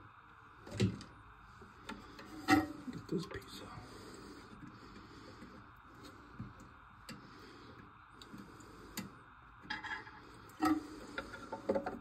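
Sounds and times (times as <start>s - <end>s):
clicks and knocks of toilet valve parts: 9.0s - 12.0s.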